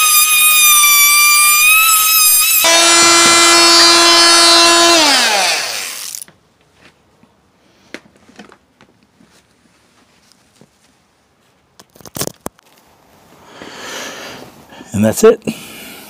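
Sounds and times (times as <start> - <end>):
multi-tool motor whine: 0.0 - 6.3.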